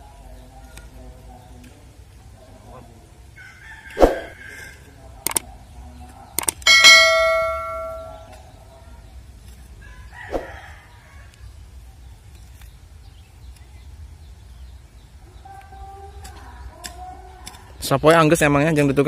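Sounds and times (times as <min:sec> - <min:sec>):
sharp clicks: 0:05.2 - 0:05.5, 0:06.4 - 0:06.6
metal clang ringing: 0:06.6 - 0:08.4.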